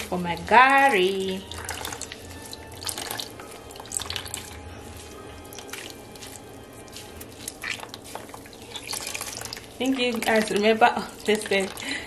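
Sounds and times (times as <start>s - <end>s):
water splashes: 0.0s - 12.0s
water pouring into plastic tub: 1.5s - 4.6s, 7.2s - 12.0s
wet pulp squeezed in cloth: 1.5s - 10.6s.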